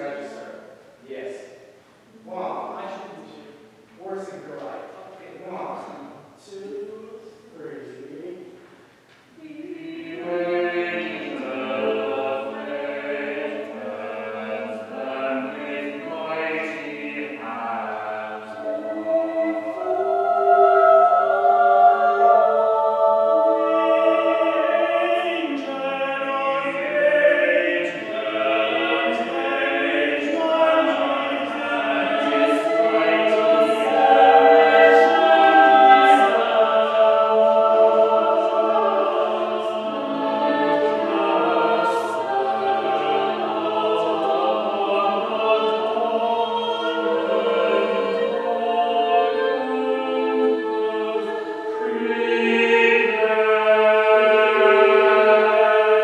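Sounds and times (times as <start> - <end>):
choir singing sustained chords: 0.0 - 4.4, 8.3 - 56.0.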